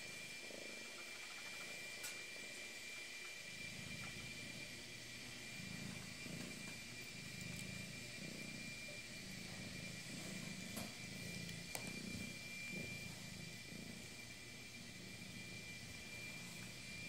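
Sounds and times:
cat purring: 0:00.0 - 0:17.0.

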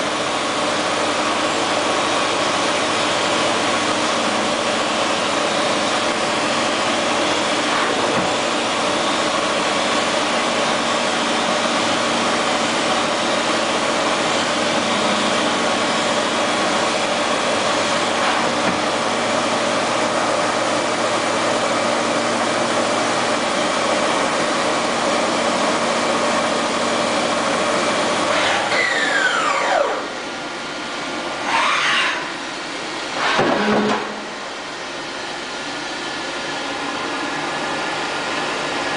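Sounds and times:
machining center mechanical whir: 0:00.0 - 0:38.9
motor whining: 0:28.3 - 0:30.2.

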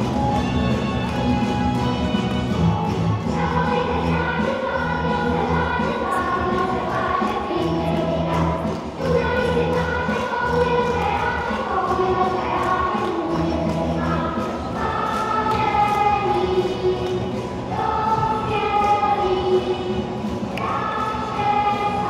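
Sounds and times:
dance music with choir singing: 0:00.0 - 0:22.0.

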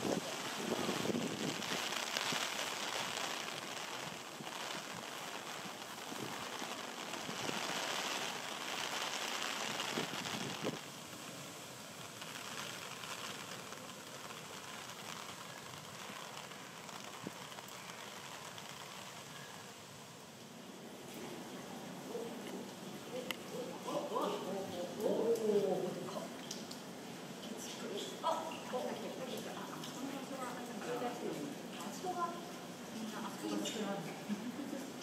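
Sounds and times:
sharp raindrop hits: 0:00.0 - 0:20.2
heavy rain falling: 0:00.0 - 0:35.0.

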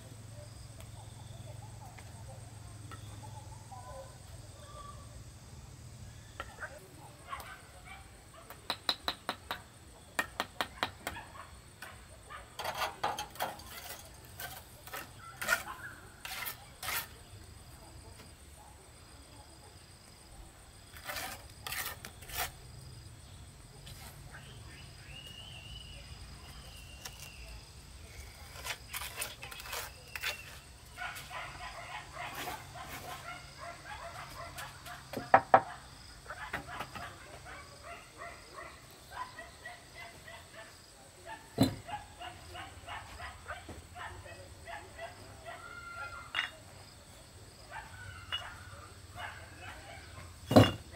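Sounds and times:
taps and knocks on brick wall: 0:08.5 - 0:11.2, 0:35.1 - 0:35.7, 0:41.6 - 0:41.9.

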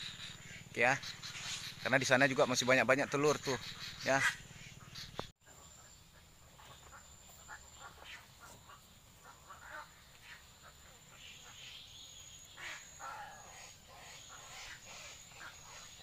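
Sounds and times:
egrets croaking: 0:00.0 - 0:11.7.

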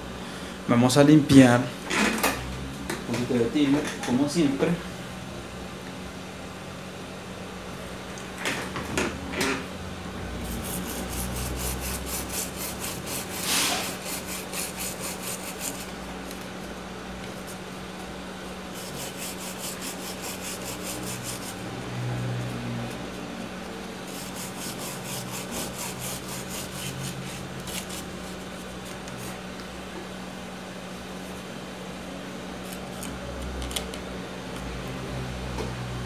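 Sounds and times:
toothbrush scrubbing circuit board: 0:10.4 - 0:15.9, 0:18.7 - 0:21.6, 0:24.1 - 0:28.1.

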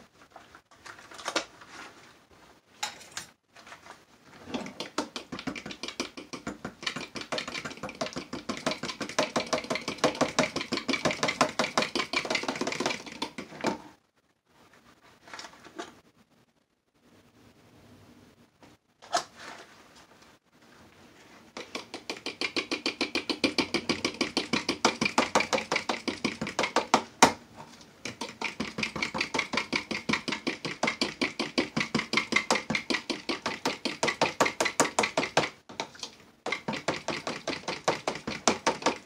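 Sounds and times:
spoon stirring in plastic pitcher: 0:04.4 - 0:13.7, 0:21.6 - 0:39.0.

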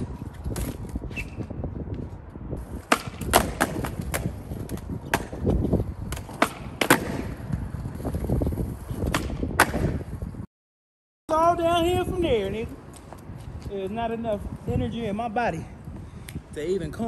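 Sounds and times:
skateboard wheels rolling on concrete: 0:00.0 - 0:10.5, 0:11.3 - 0:17.0
skateboard clacking on ground: 0:02.8 - 0:10.1.

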